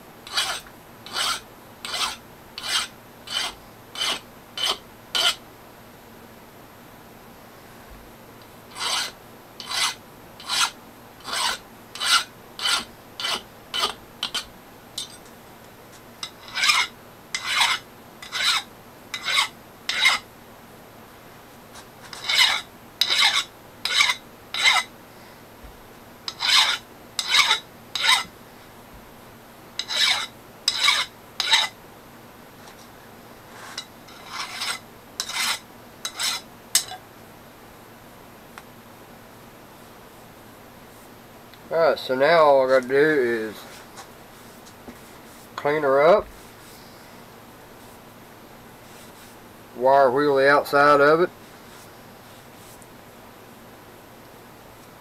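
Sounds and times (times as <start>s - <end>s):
hand file scraping steel: 0.3s - 5.4s, 8.7s - 15.2s, 16.2s - 20.2s, 21.8s - 24.9s, 26.3s - 28.3s, 29.8s - 31.8s, 33.5s - 37.0s.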